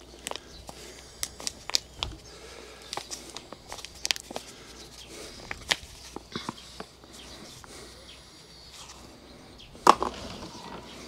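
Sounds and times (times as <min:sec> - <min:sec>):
plastic pot crinkling and clicking: 0:00.0 - 0:02.2, 0:02.8 - 0:06.6, 0:09.8 - 0:10.9.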